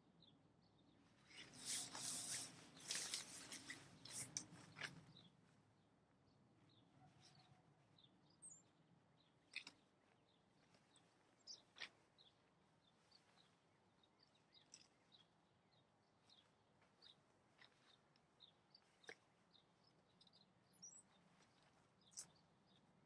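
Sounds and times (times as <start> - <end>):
faint bird chirps: 6.3 - 23.0.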